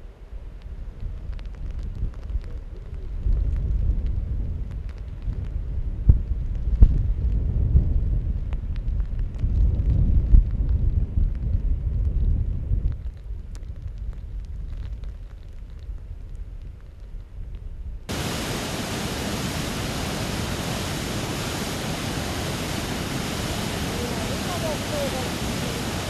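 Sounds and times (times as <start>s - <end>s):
wind buffeting microphone: 0.0s - 26.0s
hiss of water: 18.1s - 26.0s.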